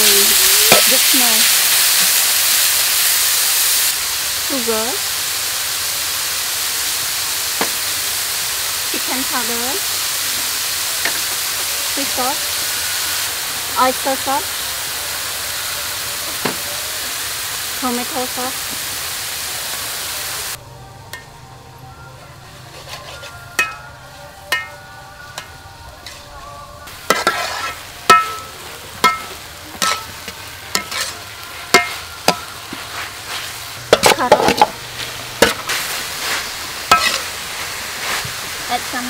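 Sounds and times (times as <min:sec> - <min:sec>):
metal spatula scraping wok: 0:00.0 - 0:02.2, 0:22.3 - 0:38.8
stir-fry sizzling in wok: 0:00.0 - 0:21.4, 0:22.4 - 0:39.0.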